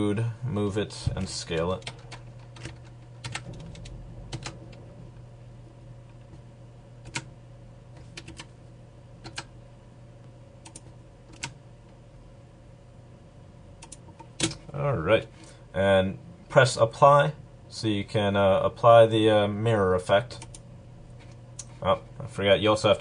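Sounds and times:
faint low hum: 0:00.0 - 0:23.0
keyboard keystroke clicks: 0:07.0 - 0:07.3, 0:09.2 - 0:09.5, 0:10.6 - 0:11.6, 0:13.8 - 0:14.6.

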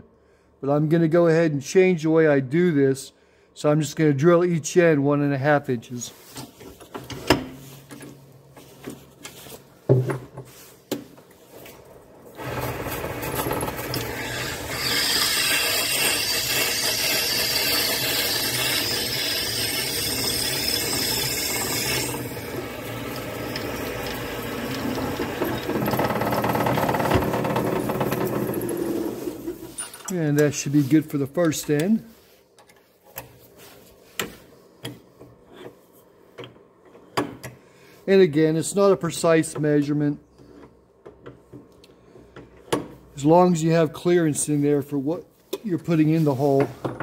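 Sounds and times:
lathe motor running: 0:12.3 - 0:29.6
drill bit cutting plastic: 0:12.4 - 0:27.2.

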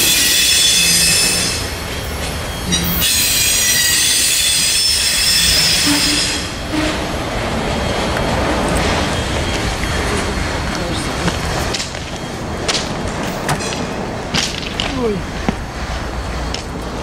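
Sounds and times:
train wheels squealing: 0:00.0 - 0:09.7
freight train rumbling by: 0:00.0 - 0:17.0.

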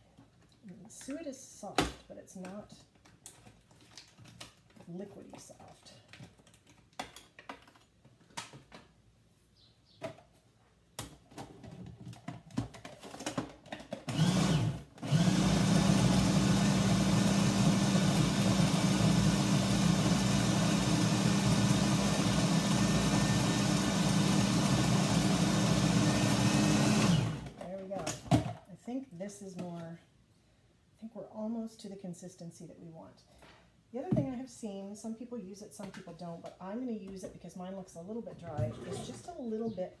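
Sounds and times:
food processor motor humming: 0:14.1 - 0:27.6.

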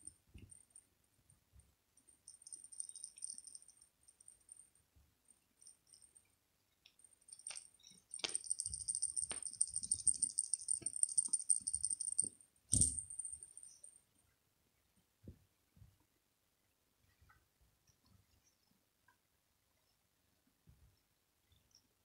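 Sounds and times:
toy bell jingling: 0:02.3 - 0:03.8, 0:07.3 - 0:13.9.

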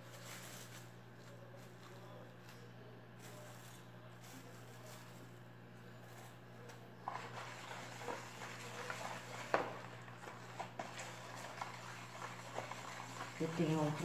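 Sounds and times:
spatula stirring soap: 0:05.9 - 0:14.0.

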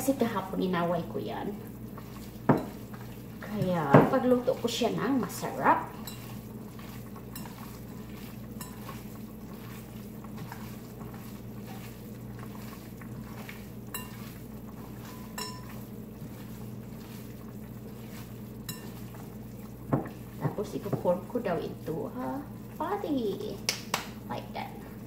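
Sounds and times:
hands mixing meat: 0:00.0 - 0:25.0
steady low hum: 0:00.0 - 0:25.0
bowl clinks: 0:15.0 - 0:15.8.

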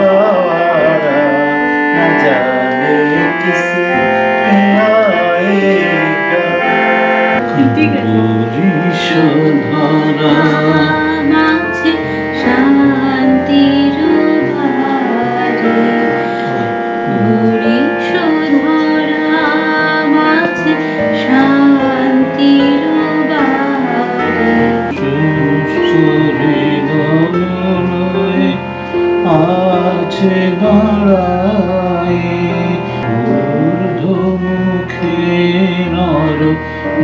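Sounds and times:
electronic keyboard chords: 0:00.0 - 0:37.0
woman singing: 0:07.4 - 0:28.5.

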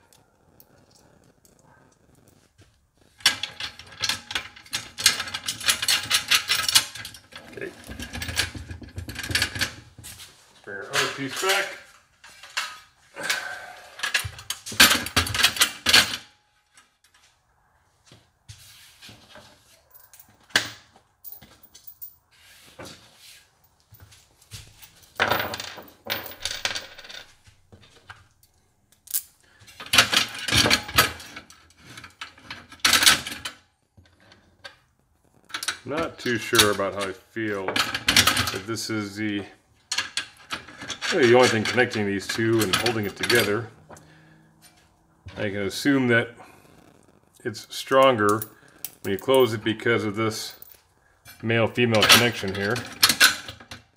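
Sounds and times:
metal hardware clinking: 0:28.4 - 0:31.3, 0:48.2 - 0:49.8.

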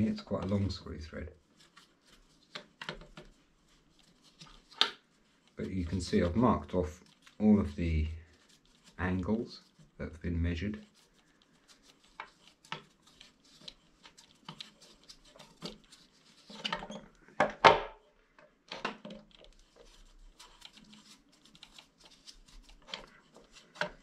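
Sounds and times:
small clicks and knocks: 0:02.4 - 0:03.4, 0:04.0 - 0:05.0, 0:12.0 - 0:24.0.

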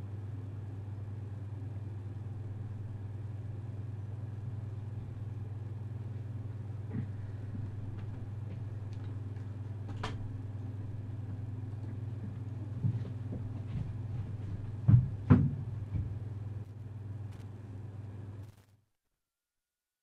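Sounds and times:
low steady hum: 0:00.0 - 0:18.8
sharp knocks and thumps: 0:12.2 - 0:16.2.

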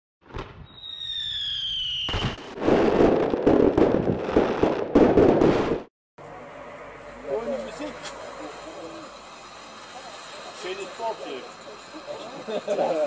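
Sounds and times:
firework rocket whistle: 0:00.2 - 0:04.4
firework burst crackling: 0:00.2 - 0:05.9.

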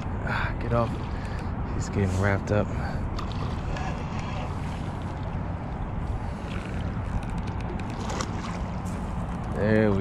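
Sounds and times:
low rumbling noise: 0:00.0 - 0:10.0
fish splashing in water: 0:06.2 - 0:09.4.

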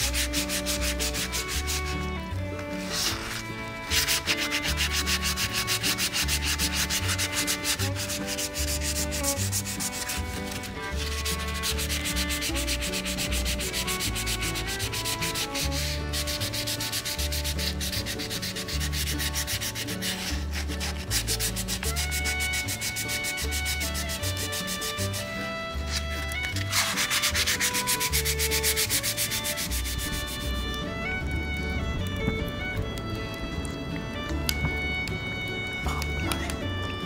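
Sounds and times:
fast scraping rhythm: 0:00.0 - 0:33.4
bassline: 0:00.0 - 0:37.0.

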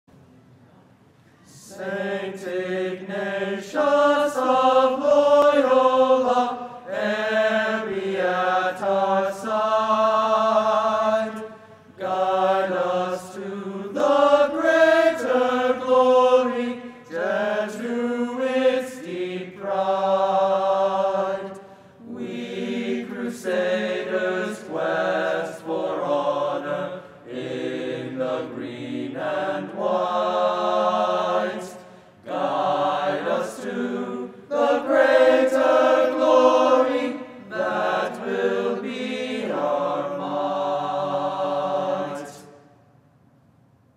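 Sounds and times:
male choir singing a cappella: 0:01.5 - 0:42.7
singers breathing: 0:06.6 - 0:06.9, 0:16.8 - 0:17.1, 0:21.6 - 0:22.0, 0:31.8 - 0:32.3.

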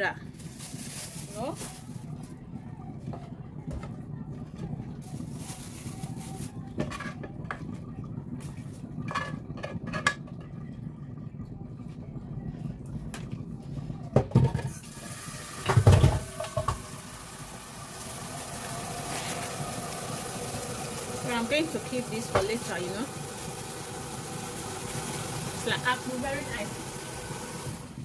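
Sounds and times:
plastic bag crinkling: 0:00.4 - 0:02.2.

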